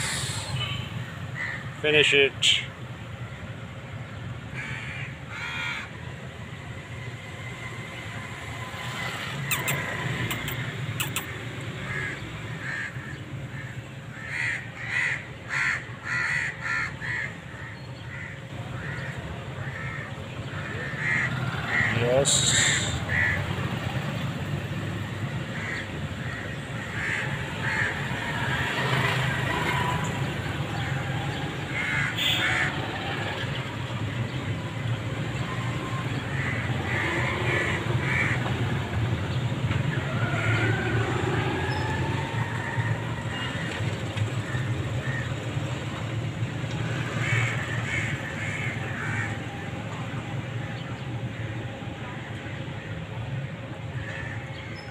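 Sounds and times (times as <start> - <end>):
crows cawing: 1.0 - 1.8, 4.5 - 6.0, 9.4 - 23.6, 25.3 - 30.0, 30.6 - 33.0, 36.3 - 38.9, 40.0 - 43.8, 44.4 - 45.4, 47.0 - 49.6.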